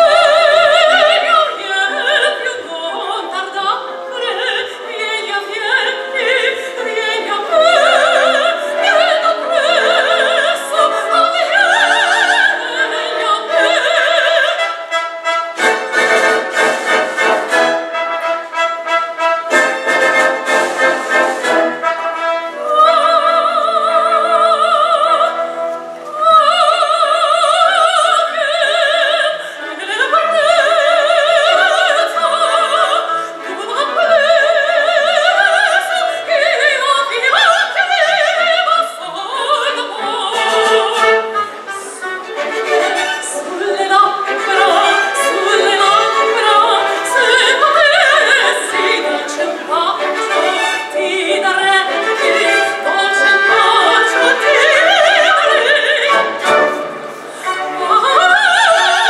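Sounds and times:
orchestral accompaniment: 0.0s - 27.7s, 38.9s - 59.0s
woman singing opera: 0.0s - 59.0s.

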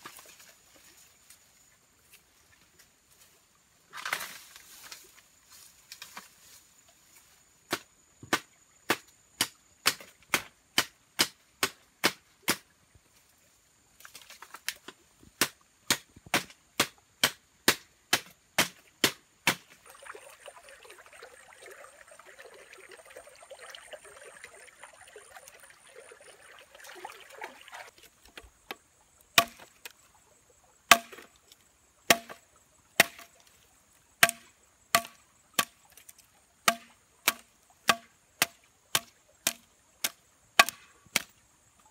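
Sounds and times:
blade chopping bamboo: 7.7s - 12.6s, 15.4s - 19.8s, 29.4s - 29.9s, 30.9s - 31.3s, 32.1s - 32.4s, 33.0s - 33.3s, 34.2s - 35.8s, 36.6s - 41.3s
stream water running: 18.2s - 41.9s.

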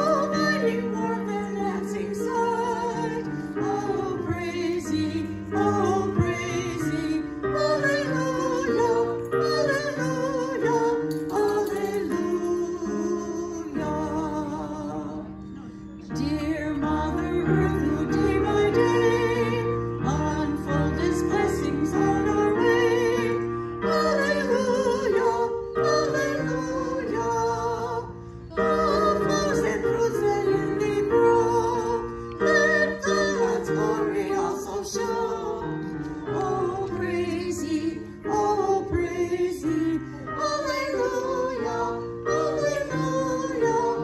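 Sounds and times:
singer breathing: 28.1s - 28.5s.

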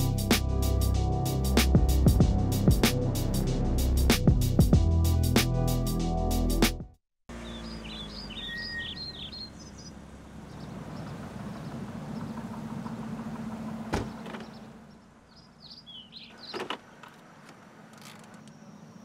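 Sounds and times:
birds chirping: 7.3s - 19.0s
car door shutting: 13.8s - 14.7s, 16.4s - 18.5s
gear selector clunk: 16.4s - 18.6s.

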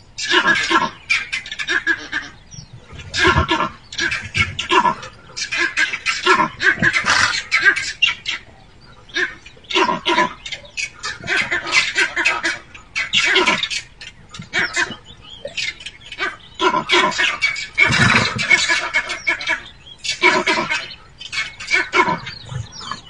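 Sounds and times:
leopard snarling and hissing: 2.7s - 7.9s, 16.6s - 19.0s.

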